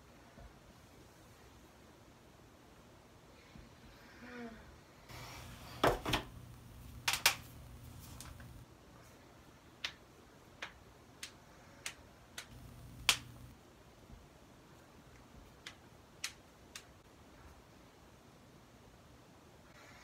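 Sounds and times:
sharp hand clicks: 10.6 - 13.4, 15.6 - 16.9.

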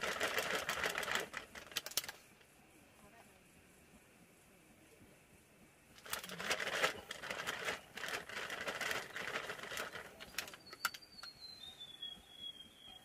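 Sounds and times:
plastic bag crinkling: 6.0 - 10.6
high whistle sliding down: 11.0 - 13.0.

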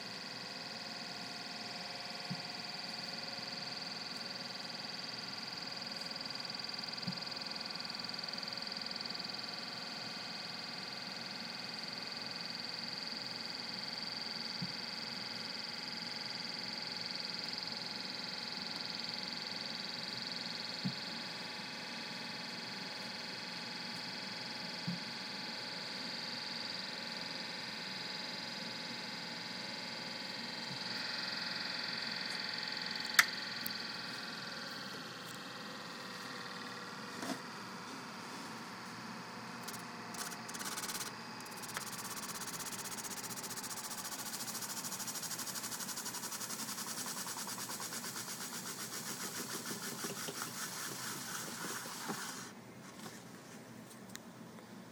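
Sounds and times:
electric motor whirring: 39.6 - 46.7, 47.5 - 52.5
sharp ticks: 39.6 - 47.8.

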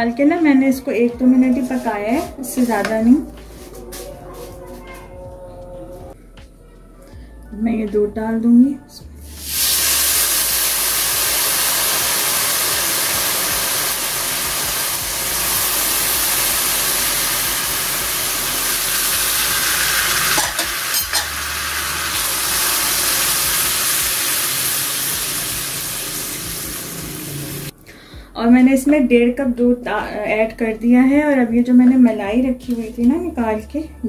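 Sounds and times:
milk sizzling in hot wok: 9.3 - 27.7.

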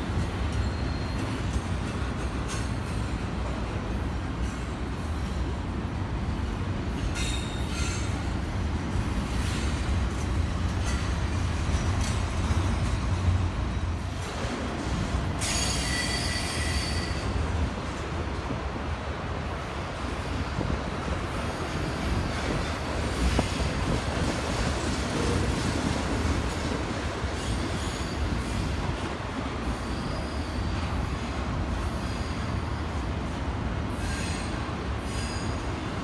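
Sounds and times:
freight train wheels rumbling on rails: 0.0 - 36.0
faint high-pitched wheel squeal: 0.6 - 1.4.

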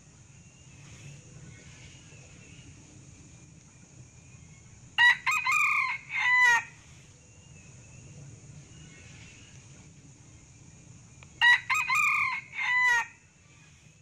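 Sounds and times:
rooster crowing: 5.0 - 6.8, 11.4 - 13.2.

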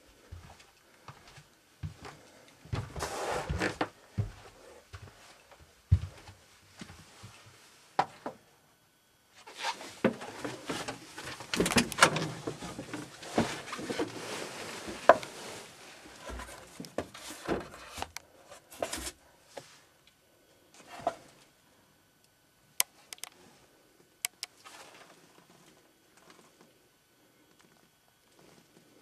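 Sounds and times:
rustling handling noise: 9.4 - 19.9
knocks and clicks: 24.2 - 24.5.

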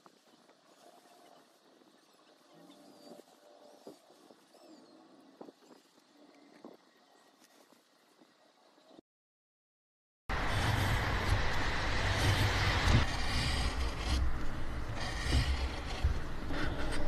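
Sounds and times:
chisel scraping wood: 10.3 - 17.0
low rumble: 10.3 - 17.0.

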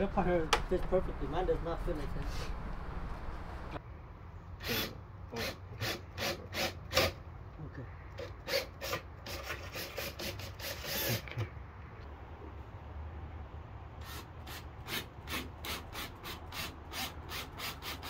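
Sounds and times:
rasping filing strokes: 8.4 - 11.3.

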